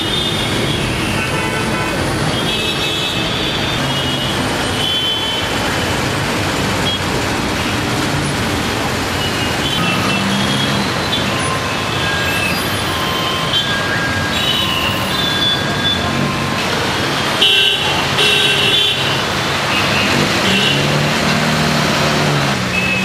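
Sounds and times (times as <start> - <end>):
traffic engines running: 0.0 - 23.0
vehicle horn beeps: 9.3 - 16.6.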